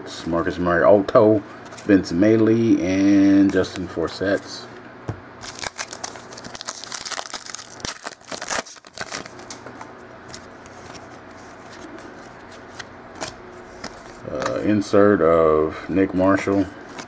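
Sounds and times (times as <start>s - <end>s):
card pack wrapper tearing: 5.4s - 9.6s
wrapper crinkling: 5.4s - 9.7s
cards rustling: 5.4s - 15.0s.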